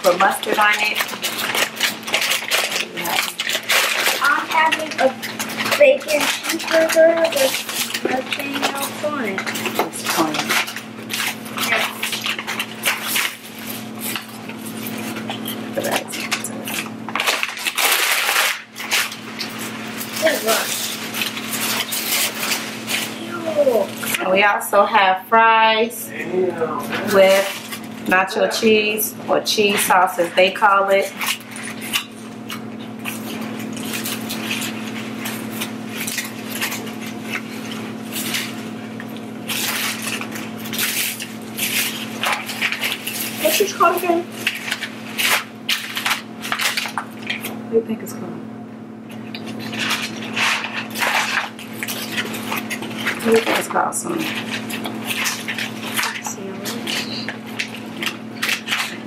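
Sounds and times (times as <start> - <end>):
paper and plastic bags rustling: 0.0 - 48.0, 49.1 - 59.0
steady low hum: 0.0 - 59.0.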